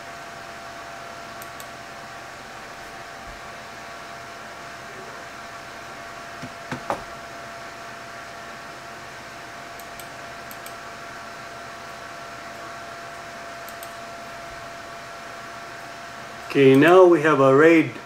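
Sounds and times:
computer cooling fans whirring: 0.0s - 18.0s
short knocks: 6.4s - 7.1s.

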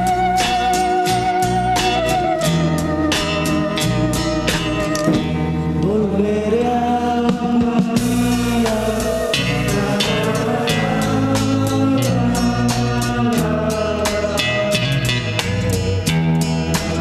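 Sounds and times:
instrumental pop-rock music: 0.0s - 17.0s.

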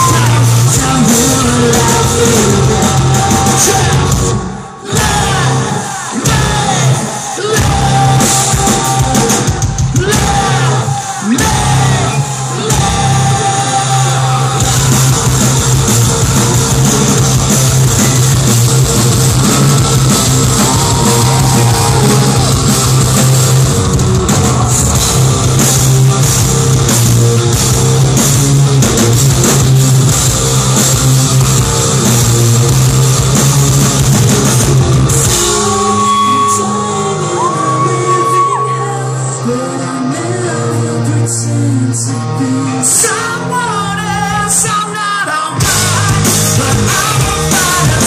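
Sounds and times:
person singing: 0.0s - 17.2s, 19.4s - 25.0s, 34.6s - 48.0s
live rock band playing: 0.0s - 48.0s.

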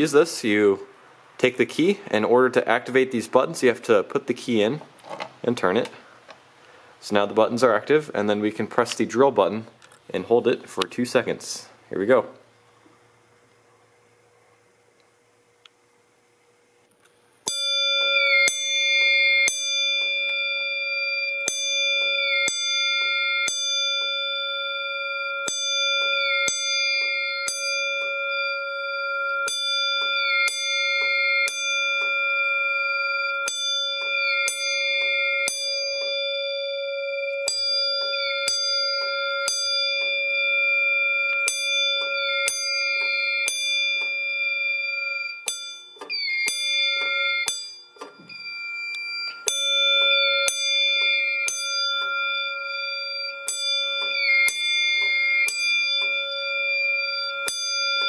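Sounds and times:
fire alarm bell strikes: 17.4s - 58.0s.

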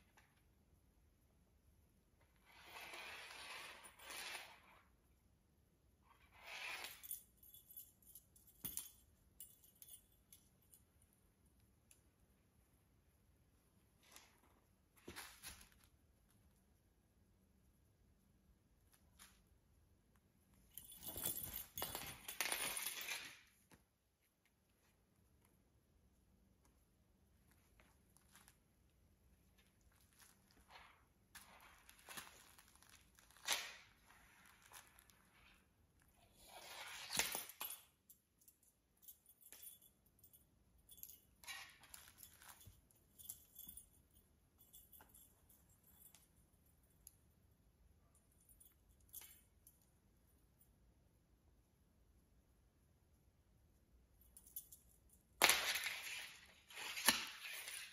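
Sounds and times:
felt mat rustling and scraping: 2.4s - 4.8s.

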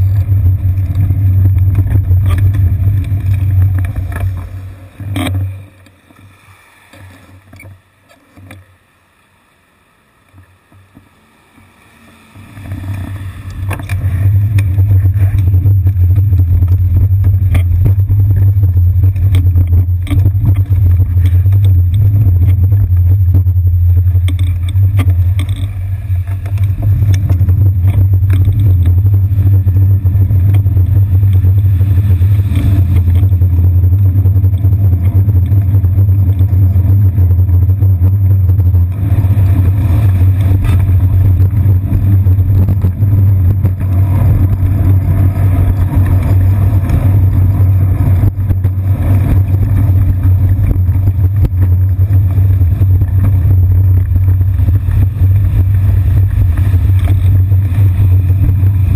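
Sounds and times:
wind rumble on microphone: 0.0s - 5.9s, 12.0s - 58.9s
road vibration rumble: 0.0s - 58.9s.

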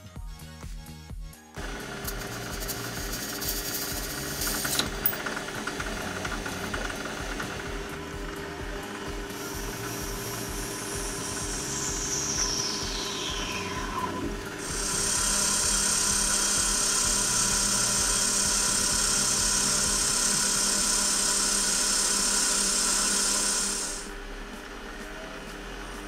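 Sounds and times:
high-pitched cutting hiss: 1.6s - 5.2s, 8.4s - 24.2s
lathe humming: 1.6s - 26.0s.

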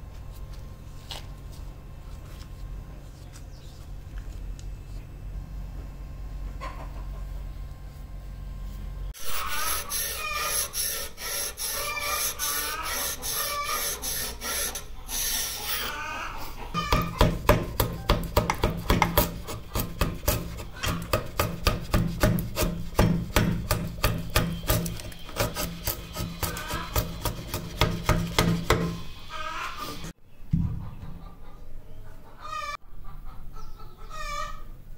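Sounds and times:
chisel scraping wood: 18.3s - 29.0s.

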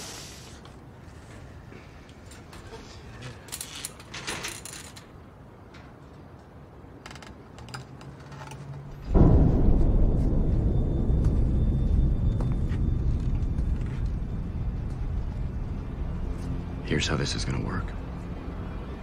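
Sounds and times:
loud low rumble: 9.0s - 19.0s.

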